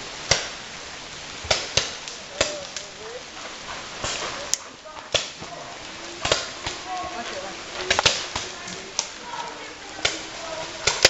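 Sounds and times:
faint shouting voices: 2.2 - 11.0.

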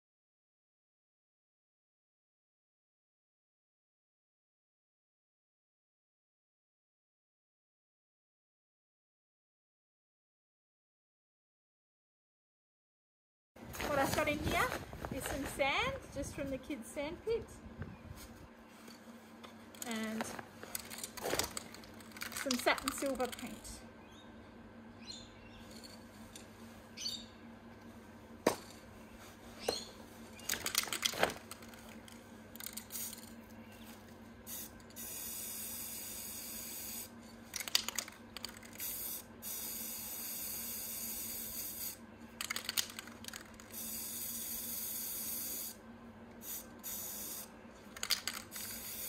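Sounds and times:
spray can clicks and rattles: 20.7 - 23.6, 32.6 - 33.3, 34.5 - 45.8, 46.4 - 49.0
spray paint can hissing: 32.6 - 33.3, 34.5 - 37.1, 38.4 - 45.8, 46.4 - 49.0.

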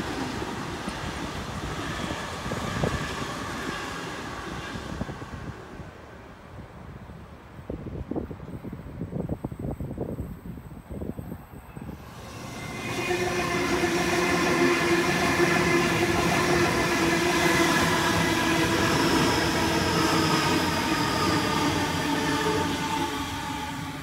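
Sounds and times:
train wheels rumbling on rails: 0.0 - 6.0, 11.8 - 24.0
electric train whine: 0.0 - 6.4, 8.4 - 24.0
faint wind: 0.0 - 24.0.

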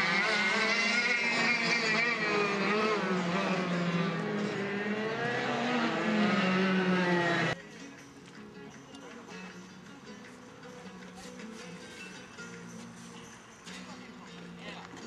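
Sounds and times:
go-kart engines revving: 0.0 - 7.6.

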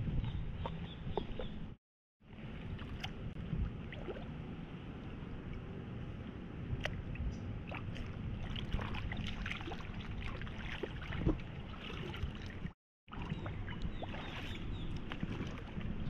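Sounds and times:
pool water splashing: 7.6 - 16.0.

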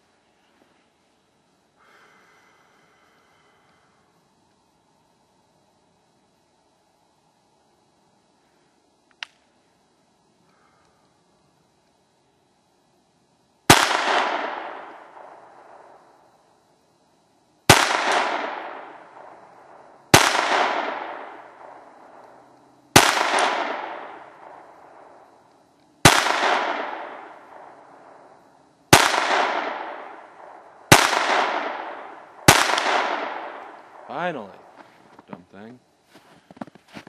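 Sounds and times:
pistol shots echoing: 13.7 - 15.9, 17.7 - 22.3, 22.9 - 25.2, 26.0 - 28.2, 28.9 - 34.5.

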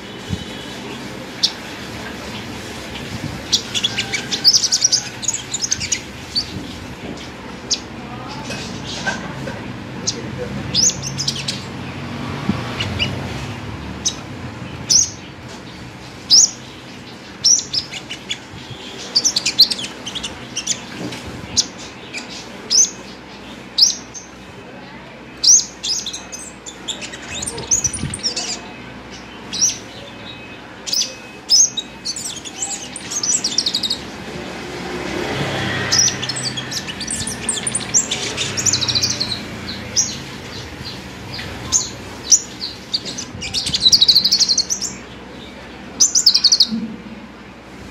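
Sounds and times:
sunbird chirping and twittering: 0.0 - 47.2.

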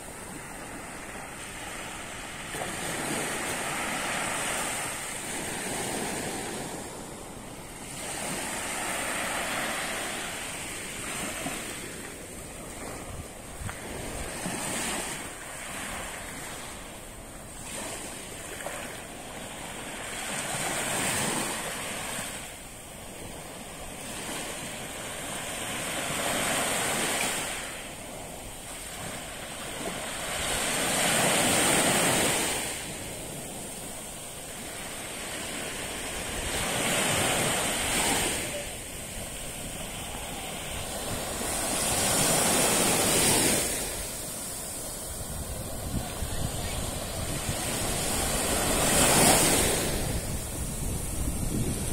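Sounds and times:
small waves breaking on beach: 0.0 - 51.9.

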